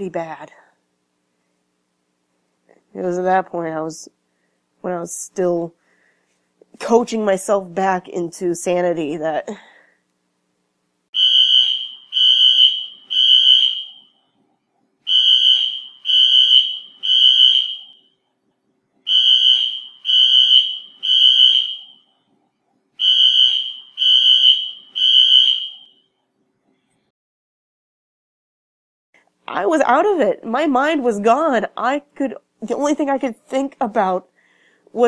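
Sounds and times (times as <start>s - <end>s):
fire alarm beeping: 11.2s - 14.2s, 15.1s - 18.3s, 19.1s - 22.2s, 23.0s - 26.2s.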